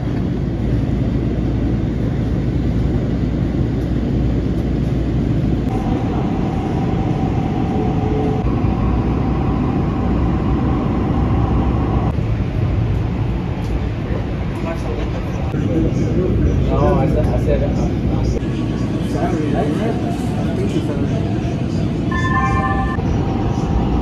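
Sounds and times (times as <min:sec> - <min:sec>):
steady whine: 0:00.0 - 0:14.3, 0:20.8 - 0:24.0
train rumbling on rails: 0:00.0 - 0:24.0.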